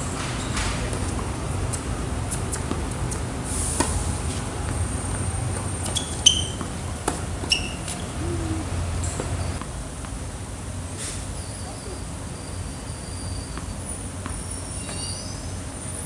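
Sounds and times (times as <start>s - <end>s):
tennis ball hits and bounces: 3.8s - 8.1s
short high squeak: 5.8s - 6.6s.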